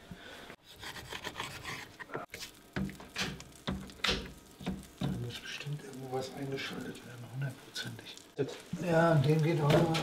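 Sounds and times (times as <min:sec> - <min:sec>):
scraping in a frying pan: 0:00.7 - 0:05.6
butter crackling: 0:01.4 - 0:10.0.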